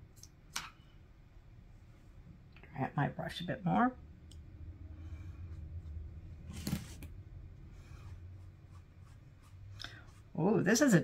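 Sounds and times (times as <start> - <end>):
low steady hum: 0.0 - 11.0
paintbrush on paper: 7.6 - 11.0.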